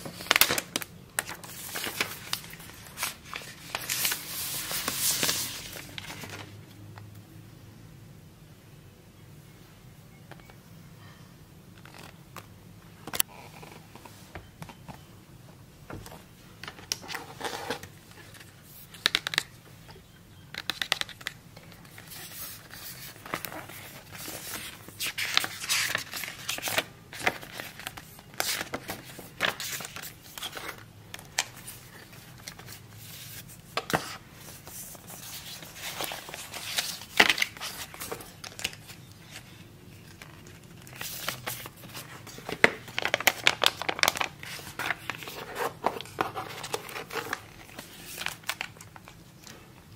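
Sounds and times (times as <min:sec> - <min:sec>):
paper and card rustling: 0:00.0 - 0:06.6, 0:20.6 - 0:49.6.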